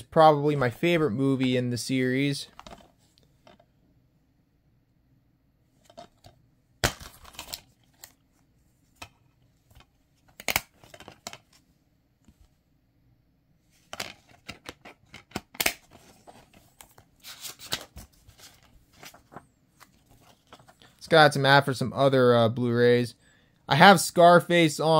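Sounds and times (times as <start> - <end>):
paper rustling: 13.7 - 21.0.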